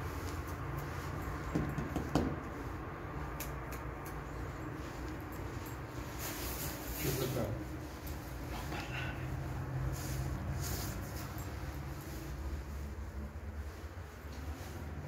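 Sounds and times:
loud knocks: 1.5 - 2.4
light clicks and taps: 3.2 - 5.7.

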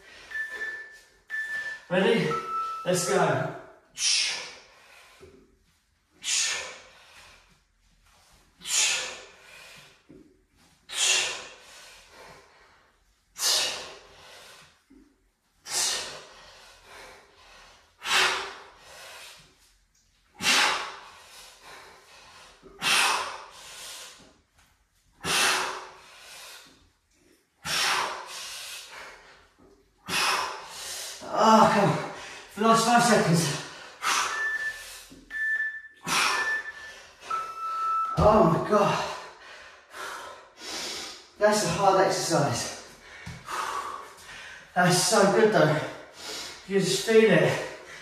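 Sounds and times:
man breathing hard: 4.0 - 5.5, 6.1 - 7.7, 8.6 - 10.2, 10.8 - 19.7, 20.3 - 24.4, 25.2 - 26.9, 27.6 - 31.2, 32.0 - 35.3, 36.0 - 37.5, 38.1 - 41.4, 42.7 - 44.8, 45.8 - 46.7.

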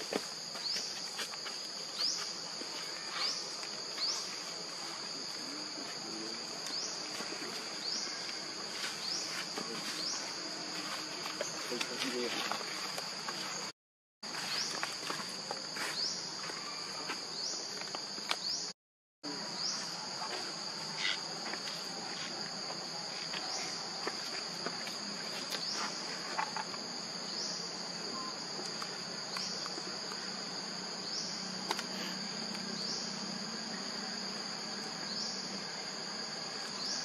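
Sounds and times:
insects buzzing: 0.0 - 37.0.

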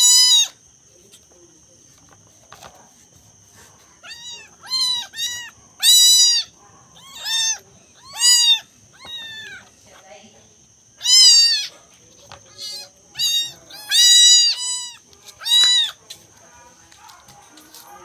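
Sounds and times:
kittens mewing: 0.0 - 0.6, 4.0 - 9.8, 11.0 - 16.0.

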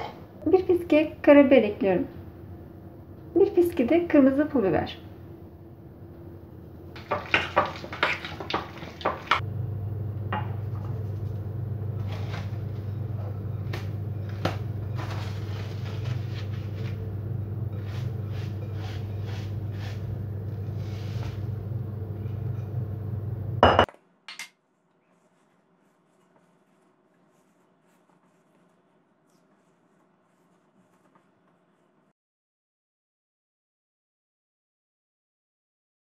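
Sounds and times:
steady low hum: 0.1 - 8.0, 9.0 - 23.9
fork scraping glass bowl: 17.7 - 20.1.

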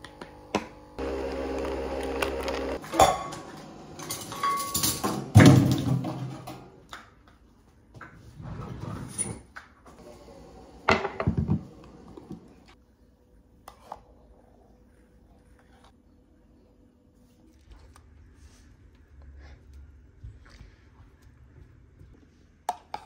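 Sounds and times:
appliance hum: 0.0 - 6.9, 9.8 - 13.1.

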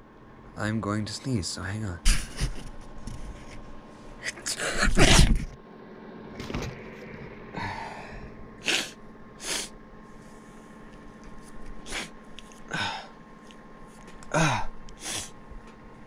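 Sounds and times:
sniffing: 8.6 - 9.7, 11.8 - 13.0, 15.0 - 15.4.

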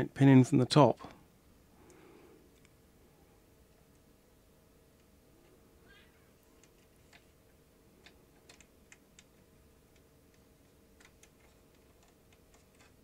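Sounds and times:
faint steady hum: 0.0 - 13.0
small mechanical clicks: 11.0 - 13.0.

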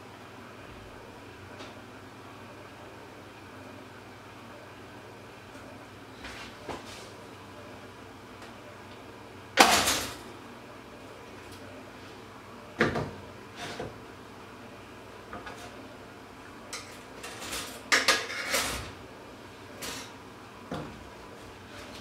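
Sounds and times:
kitchen knocks and clatters: 9.6 - 10.2, 12.8 - 14.0, 16.8 - 19.0.

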